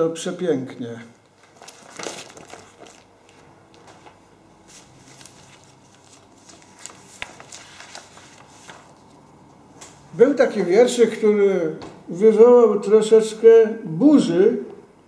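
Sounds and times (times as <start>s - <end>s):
paper rustling: 1.3s - 10.0s.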